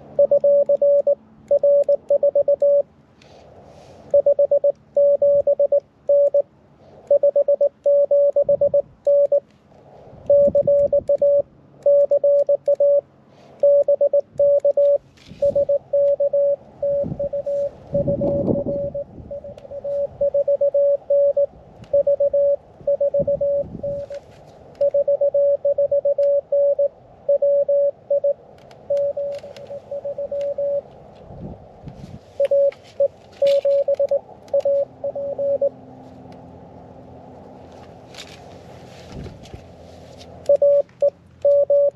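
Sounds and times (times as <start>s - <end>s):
morse code beeps: 0.1s - 2.9s, 4.1s - 6.5s, 7.1s - 9.4s, 10.3s - 13.0s, 13.6s - 24.2s, 24.8s - 30.8s, 32.4s - 35.8s, 40.4s - 41.9s.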